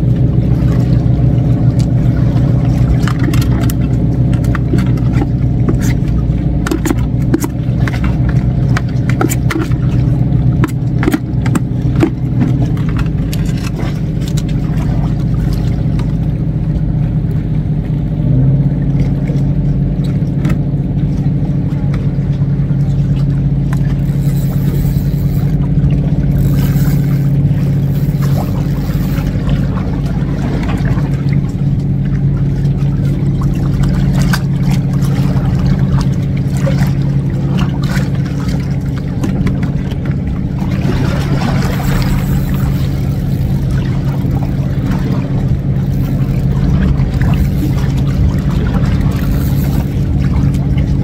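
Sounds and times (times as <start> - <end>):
engine droning steadily: 0.0 - 51.0.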